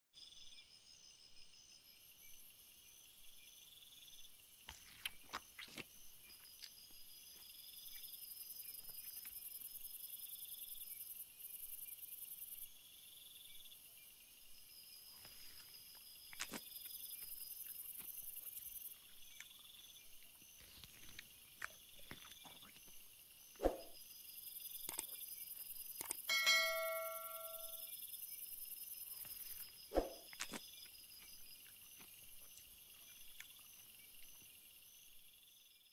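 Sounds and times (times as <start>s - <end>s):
high insect hiss: 0.2s - 35.9s
insects chirping: 0.2s - 35.9s
notification bell chime: 26.3s - 27.8s.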